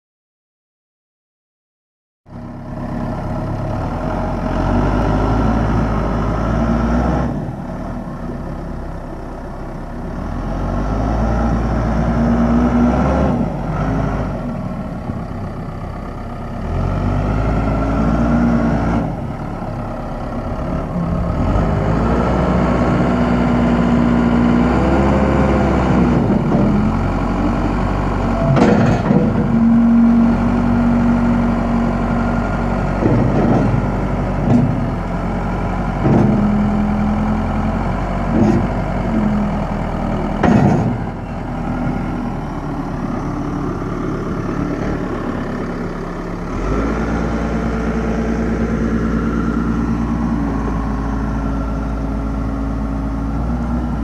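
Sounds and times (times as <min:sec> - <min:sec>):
diesel engine under load: 0:02.3 - 0:54.0
sharp knocks: 0:40.4 - 0:41.1.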